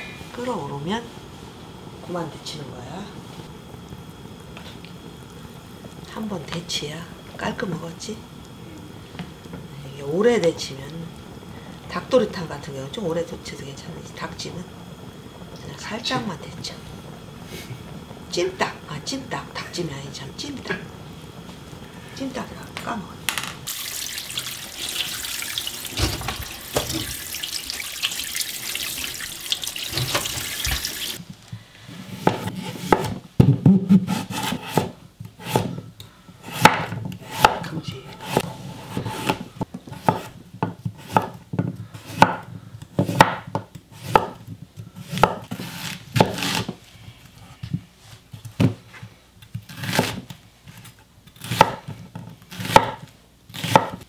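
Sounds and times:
tap water running: 23.7 - 31.2
knife chopping on wooden board: 32.2 - 35.8, 36.5 - 37.6, 38.2 - 41.4, 42.0 - 44.4, 51.4 - 51.9, 52.5 - 53.0, 53.6 - 54.0.

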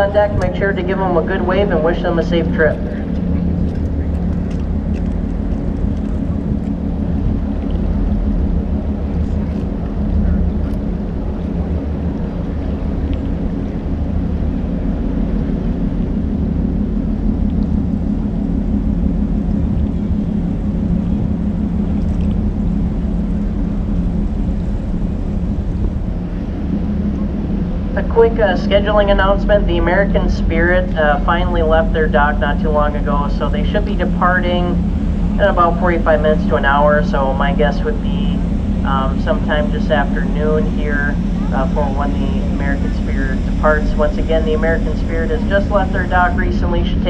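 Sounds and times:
ship diesel engines droning: 0.0 - 47.0.

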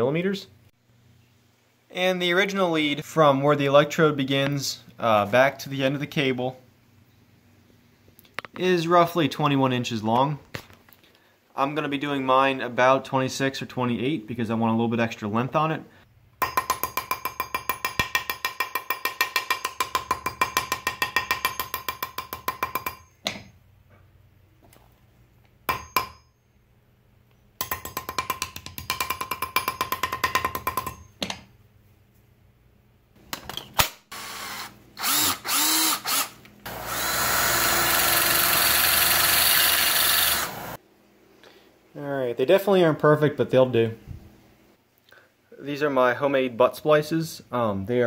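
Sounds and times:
hammer striking metal wire: 16.4 - 23.5, 25.7 - 26.3
cordless drill whirring: 34.1 - 40.8
bench grinder grinding: 34.2 - 40.8.

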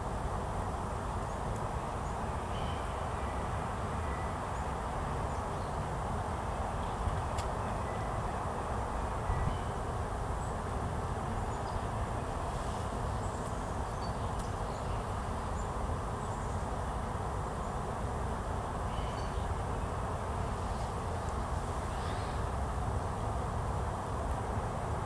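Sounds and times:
low outdoor rush: 0.0 - 25.0.

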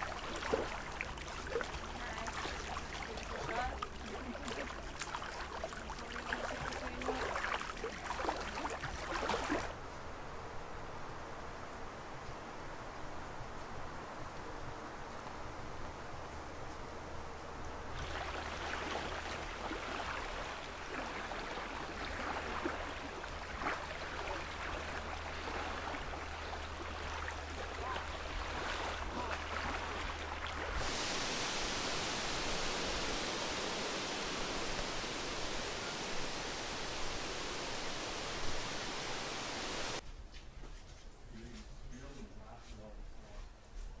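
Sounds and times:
steady rushing noise: 30.6 - 40.0
bright even hiss: 30.8 - 40.0.

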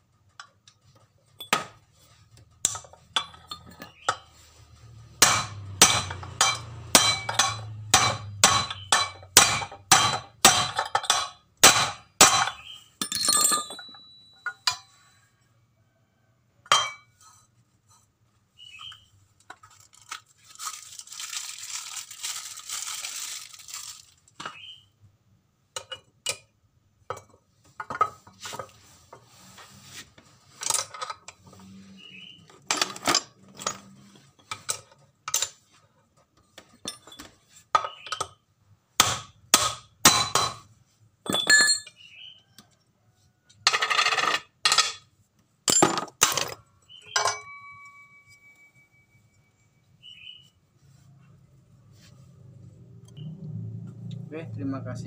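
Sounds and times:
steel collars clinking: 2.6 - 4.4, 12.4 - 15.0, 41.2 - 42.1, 45.7 - 50.2
metal pipe striking metal: 5.2 - 14.8
rustling: 19.6 - 24.4.

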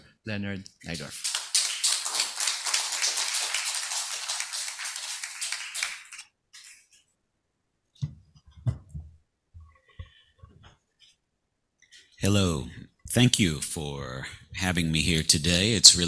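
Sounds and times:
audience applauding: 1.0 - 6.2.

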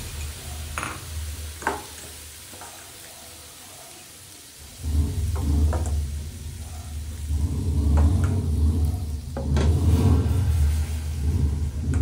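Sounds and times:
batter sizzling in a pan: 0.0 - 12.0
low rumble: 4.6 - 12.0.

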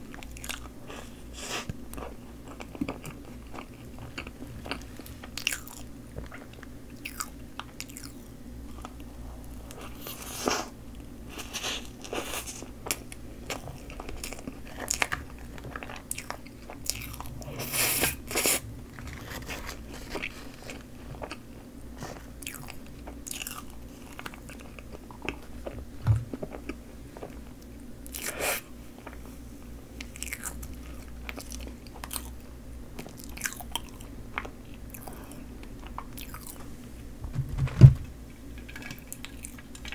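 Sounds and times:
chewing with mouth clicks: 0.1 - 9.1, 11.4 - 18.6, 30.0 - 36.6
dull thump: 37.2 - 38.1.

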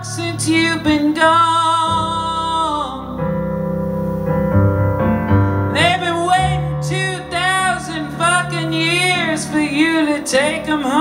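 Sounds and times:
man singing: 0.0 - 3.2, 5.7 - 11.0
piano chords: 0.0 - 11.0.

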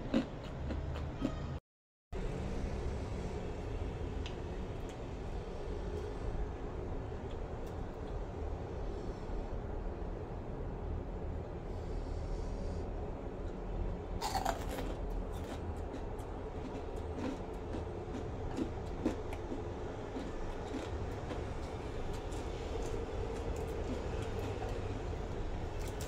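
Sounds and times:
chewing crispy chicken skin: 0.0 - 1.4, 14.2 - 26.0
steady low hum: 2.2 - 26.0.

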